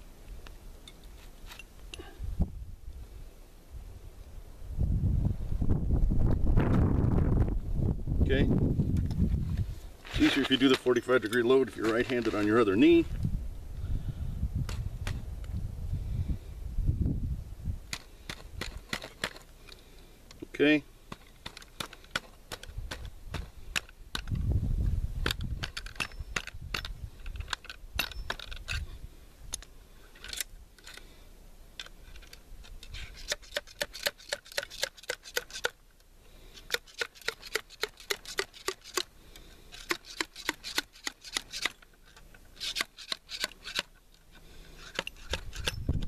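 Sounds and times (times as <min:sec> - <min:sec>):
ramrod clicks and scrapes: 0:10.1 - 0:12.9, 0:17.9 - 0:20.4, 0:21.1 - 0:24.4, 0:25.2 - 0:28.9, 0:29.5 - 0:31.1, 0:31.8 - 0:35.8, 0:36.4 - 0:46.0.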